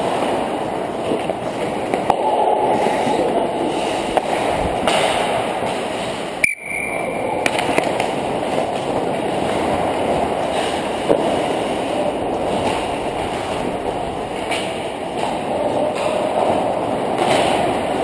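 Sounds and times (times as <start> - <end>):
faint high tone: 2.1 - 4.5
rushing air: 2.1 - 6.4
sharp clicks of sticks or puck: 4.1 - 9.7, 14.4 - 16.6, 17.2 - 18.0
skate blades scraping on ice: 7.5 - 18.0.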